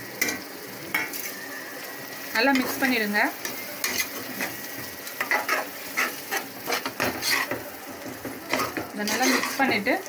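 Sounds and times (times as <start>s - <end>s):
light sizzle: 0.0s - 10.0s
metal spoon scraping a pot: 3.4s - 4.6s, 5.2s - 7.6s, 8.5s - 9.8s.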